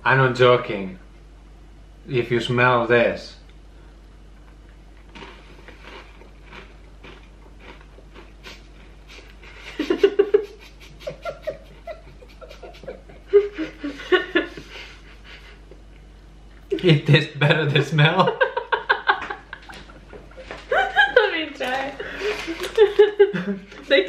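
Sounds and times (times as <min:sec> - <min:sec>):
man and woman laughing: 0:08.4 - 0:15.8, 0:16.8 - 0:21.4, 0:22.0 - 0:23.8.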